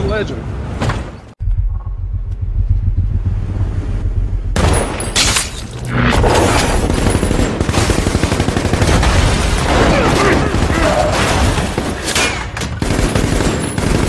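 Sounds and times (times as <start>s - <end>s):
low rumble: 1.4s - 7.7s
rapid rifle gunfire: 6.6s - 14.0s.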